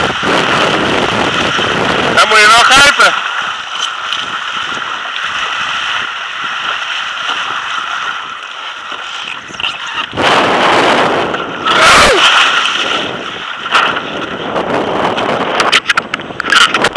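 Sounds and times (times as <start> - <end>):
water rushing past board: 0.0 - 16.9
wind buffeting microphone: 0.0 - 16.9
rig splashing into water: 3.5 - 14.6.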